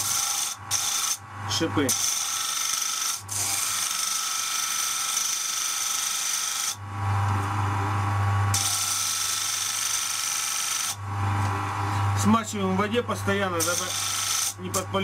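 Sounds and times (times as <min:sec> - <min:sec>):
grinder motor hum: 0:00.0 - 0:15.0
metal grinding on sanding disc: 0:00.0 - 0:15.0.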